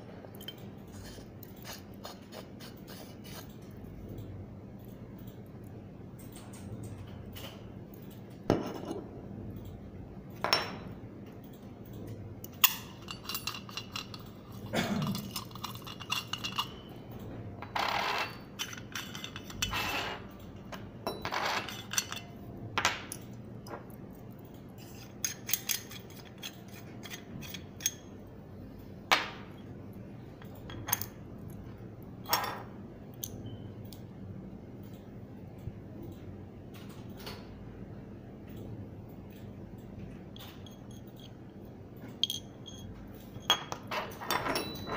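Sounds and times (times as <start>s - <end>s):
metal grinder parts clinking: 12.6s - 16.9s, 17.8s - 20.3s, 21.1s - 22.3s.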